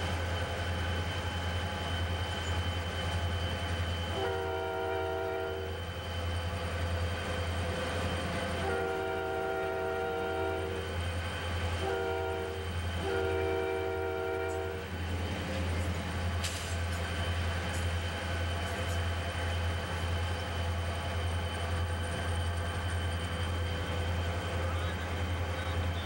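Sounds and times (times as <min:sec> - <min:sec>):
rumble of moving train: 0:00.0 - 0:26.0
locomotive air horn: 0:04.1 - 0:05.8, 0:08.5 - 0:11.0, 0:11.8 - 0:14.9.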